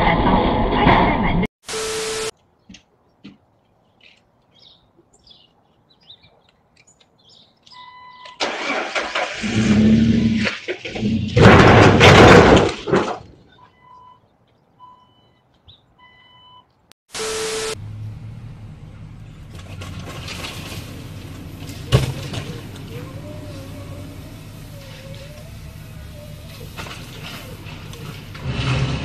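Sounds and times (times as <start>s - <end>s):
short electronic beep: 7.8s - 8.4s
car engine cranking and starting: 8.4s - 10.3s, 17.8s - 29.0s
static hiss with steady tone: 17.1s - 17.8s.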